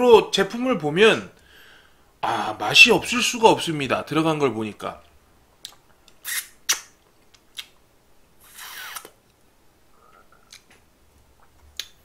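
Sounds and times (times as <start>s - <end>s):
slurp: 8.4s - 9.2s.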